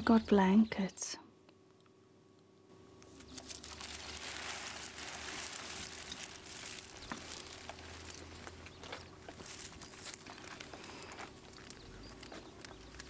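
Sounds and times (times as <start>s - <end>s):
plastic sheeting rustling: 3.1s - 11.8s.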